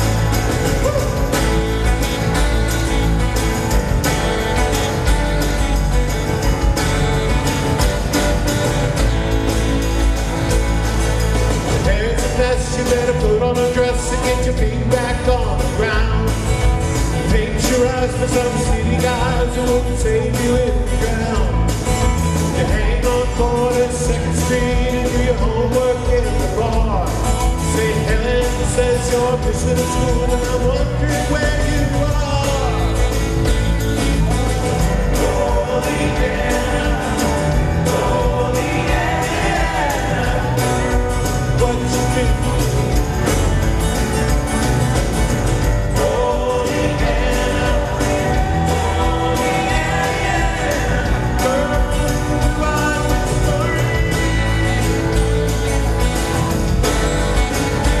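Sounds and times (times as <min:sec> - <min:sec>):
acoustic guitar: 0:00.0 - 0:58.0
lead vocal singing: 0:11.7 - 0:33.4, 0:34.0 - 0:43.6, 0:45.5 - 0:55.5.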